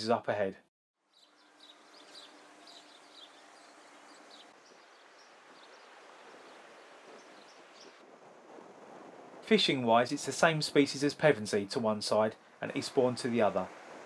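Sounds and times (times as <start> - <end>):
small birds chirping: 1.1 - 8.0
low steady hiss: 1.1 - 14.0.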